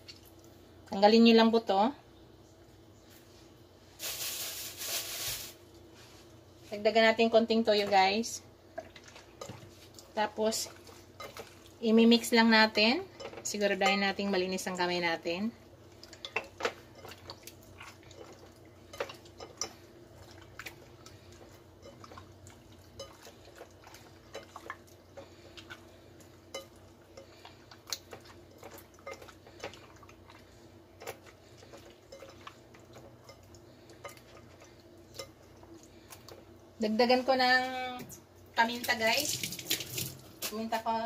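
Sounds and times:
steady low hum: 0.0 - 41.0
hands squishing wet meat: 15.8 - 36.6.

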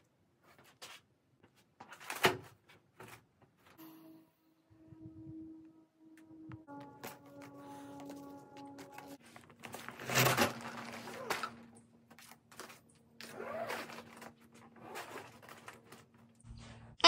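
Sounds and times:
stuff sack rustling: 9.2 - 16.2.

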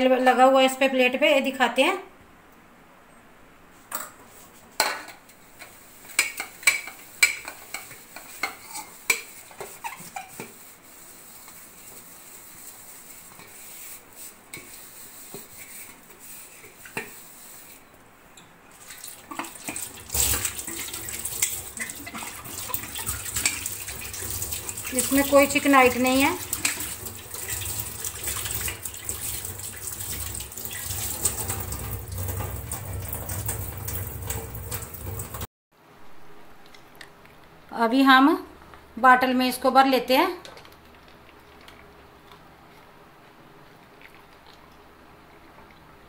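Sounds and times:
scouring pad scrubbing plate: 7.7 - 17.7, 19.2 - 35.5
tap water running: 18.7 - 35.5.

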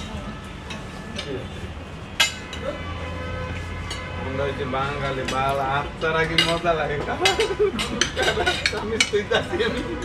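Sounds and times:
cutlery clinking on plates: 2.2 - 2.6, 5.0 - 10.0.

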